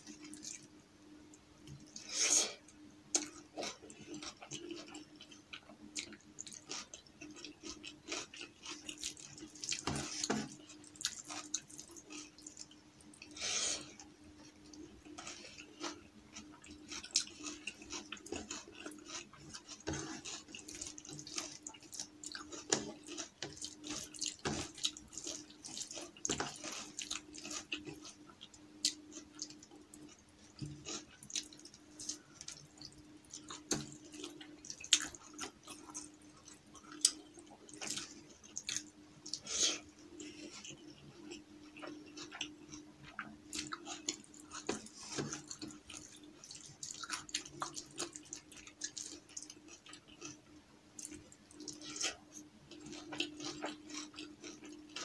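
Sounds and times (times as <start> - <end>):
wet chewing and lip smacks: 14.7 - 50.4, 51.0 - 55.0.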